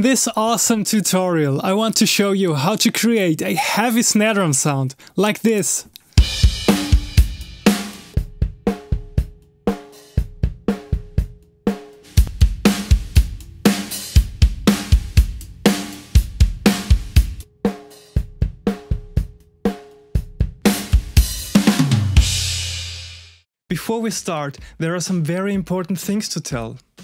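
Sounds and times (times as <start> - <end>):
drum kit playing a beat: 6.1 - 23.4.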